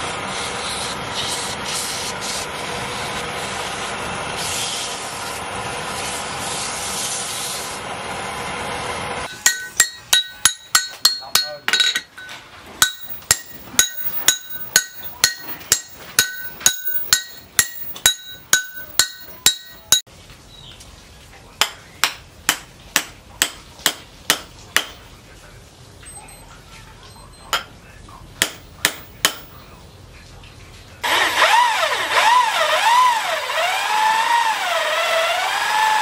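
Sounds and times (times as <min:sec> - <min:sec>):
wooden mallet striking a knife: 0:09.3 - 0:12.2, 0:12.8 - 0:20.1, 0:21.6 - 0:25.0, 0:28.4 - 0:29.5
steel blade ringing: 0:09.3 - 0:20.0.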